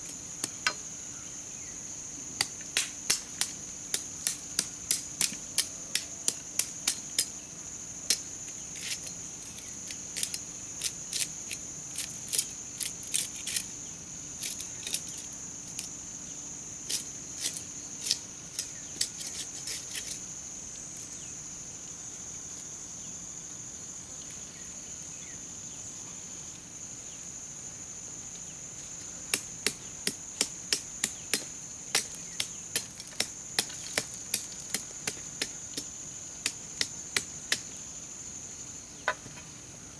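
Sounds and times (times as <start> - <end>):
high insect drone: 0.0 - 39.9
machete chopping into soil: 29.3 - 37.7.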